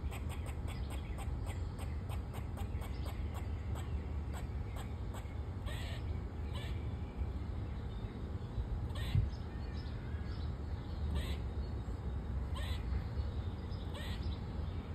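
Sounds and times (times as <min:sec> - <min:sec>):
squirrel barking calls: 0:00.0 - 0:07.0, 0:08.9 - 0:09.4, 0:11.0 - 0:11.5, 0:12.5 - 0:13.1, 0:13.7 - 0:14.4.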